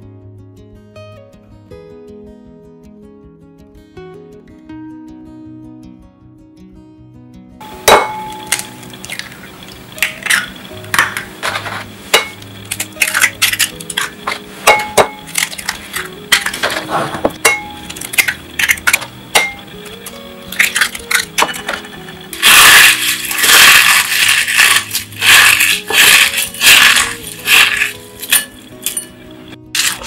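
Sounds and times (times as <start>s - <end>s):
eggshells cracked against bowl: 8.3s - 11.6s, 12.2s - 16.7s, 17.8s - 29.1s, 29.8s - 30.0s
eggshells crushed by hand: 22.4s - 29.1s, 29.8s - 30.0s.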